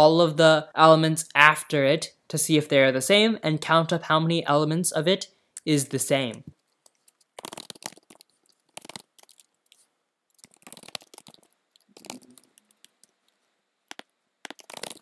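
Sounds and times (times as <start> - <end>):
computer keyboard typing: 6.9 - 9.8, 10.4 - 13.2, 13.9 - 15.0.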